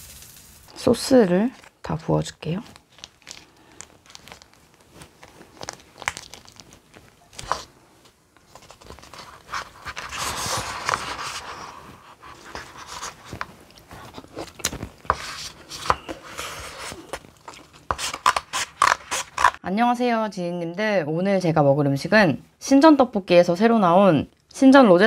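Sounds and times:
plastic packet crinkling: 0.0 - 19.6.

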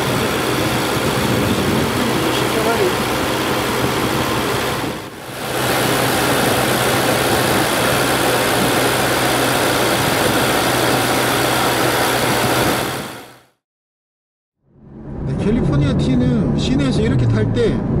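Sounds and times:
car engine running: 0.0 - 13.4
low hum: 14.6 - 18.0.

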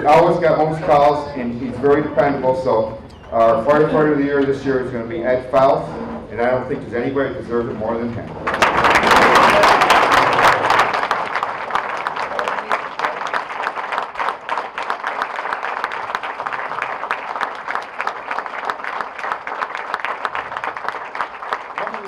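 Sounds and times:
audience applauding: 8.4 - 22.0.

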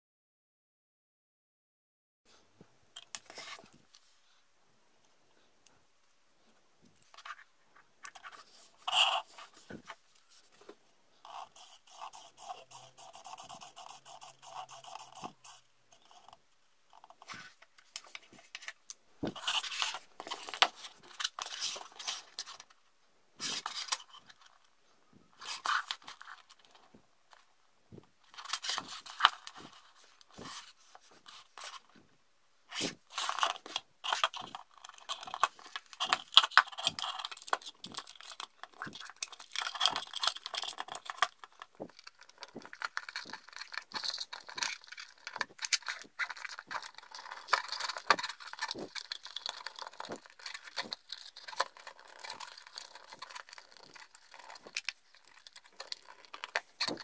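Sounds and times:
plastic parts scraping and clicking: 16.0 - 22.8, 28.2 - 32.0, 32.8 - 57.0.

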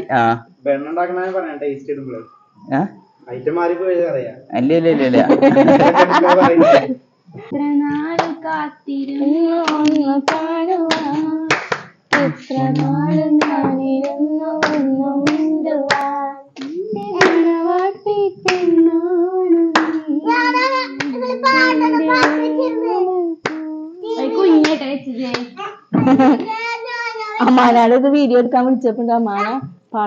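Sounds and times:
woman singing long held notes: 7.4 - 24.7
hands clapping along: 8.2 - 8.4, 9.6 - 17.9, 18.5 - 18.8, 19.7 - 20.2, 20.9 - 22.7, 23.4 - 23.8, 24.6 - 25.5.

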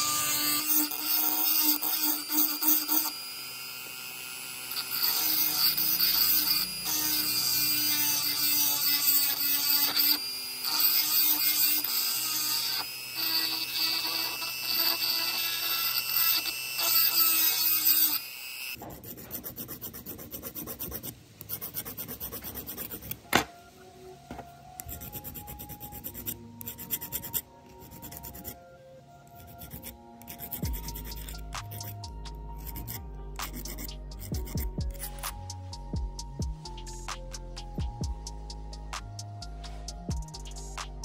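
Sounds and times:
file scraping metal: 0.0 - 3.2, 4.6 - 18.2, 18.8 - 23.2, 24.8 - 28.6, 29.3 - 35.6.

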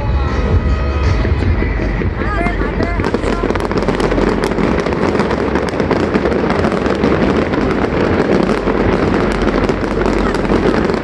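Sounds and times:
fireworks bangs and crackling: 0.0 - 11.0.

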